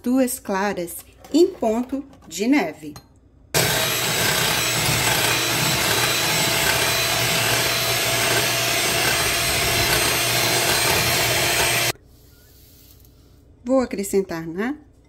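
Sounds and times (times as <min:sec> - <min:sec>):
electric hand mixer whipping: 0:03.6 - 0:12.0.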